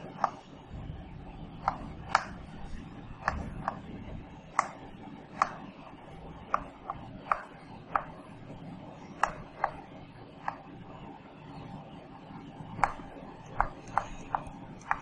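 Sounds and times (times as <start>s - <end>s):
chalk tapping on blackboard: 0.0s - 0.6s, 1.6s - 8.3s, 9.1s - 10.7s, 12.8s - 15.0s.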